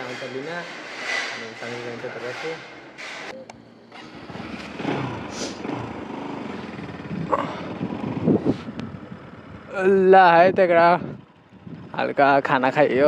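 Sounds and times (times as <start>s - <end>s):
road noise: 0.0s - 13.0s
motorcycle engine running: 3.6s - 13.0s.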